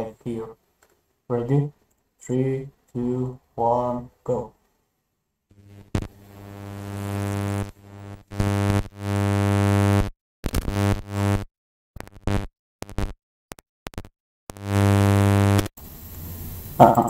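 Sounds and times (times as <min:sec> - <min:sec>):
electrical buzz: 0:05.5 - 0:13.2, 0:13.9 - 0:17.0.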